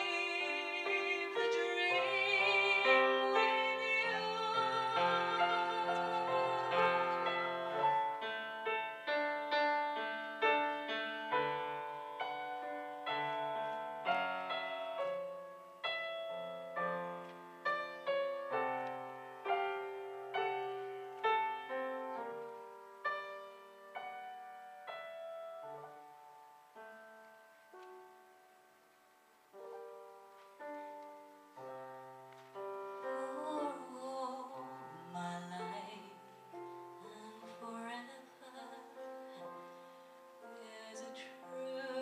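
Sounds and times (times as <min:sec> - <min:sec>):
woman singing with vibrato: 0:00.0 - 0:07.9, 0:33.1 - 0:36.3, 0:37.0 - 0:39.6, 0:40.6 - 0:42.0
slow solo piano: 0:00.0 - 0:42.0.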